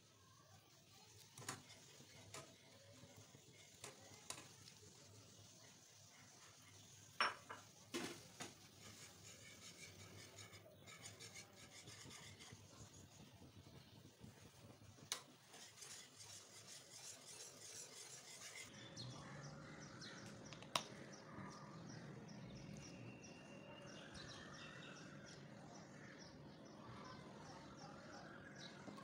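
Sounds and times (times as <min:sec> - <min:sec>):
whisk scraping in pot: 0:01.1 - 0:18.7.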